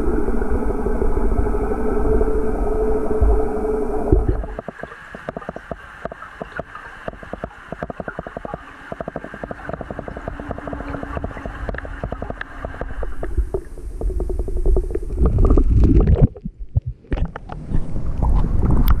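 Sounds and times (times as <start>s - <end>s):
muffled underwater wash: 0.0s - 19.0s
water sloshing and splashing: 4.1s - 19.0s
rapid uneven clicking: 4.5s - 15.7s.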